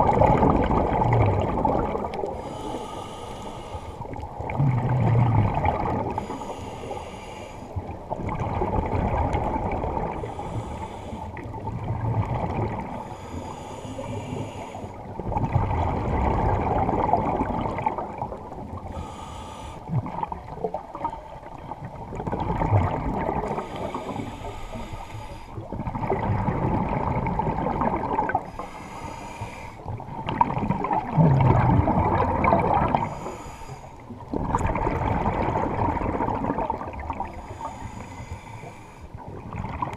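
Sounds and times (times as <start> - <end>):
diver breathing through regulator: 2.2 - 5.4, 6.0 - 7.9, 10.0 - 11.6, 12.8 - 15.1, 18.8 - 20.3, 23.4 - 25.6, 28.3 - 30.0, 32.9 - 34.2, 37.2 - 39.2.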